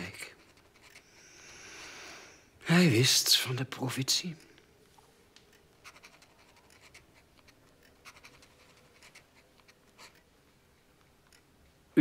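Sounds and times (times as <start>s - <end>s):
pen scratching on paper: 5.8s - 10.2s.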